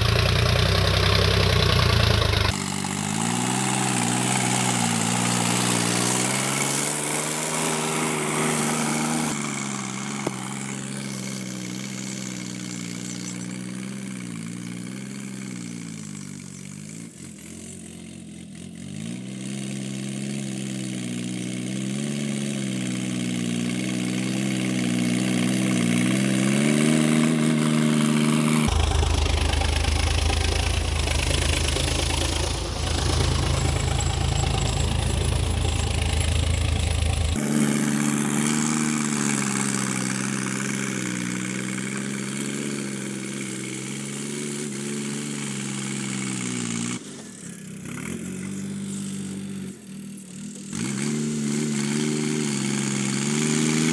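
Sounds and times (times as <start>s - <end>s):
heavy low rumble of rotavator: 0.0s - 14.9s, 27.9s - 42.5s
tractor diesel engine running: 0.0s - 53.9s.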